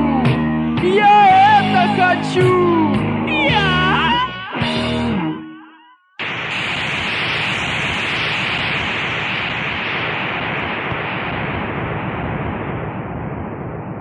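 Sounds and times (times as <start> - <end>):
rock song: 0.0 - 5.6
loud steady hiss: 6.2 - 12.0.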